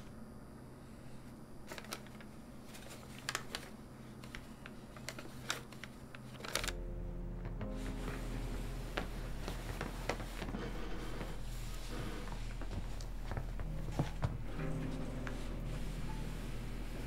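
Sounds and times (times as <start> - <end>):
low hum: 6.6 - 17.0.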